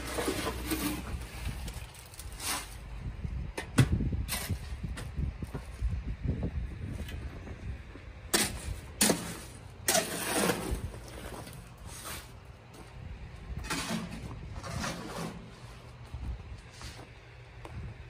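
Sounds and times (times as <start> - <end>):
steady low rumble: 0.6 - 9.8, 10.6 - 18.0
footsteps crunching on gravel: 10.7 - 13.5.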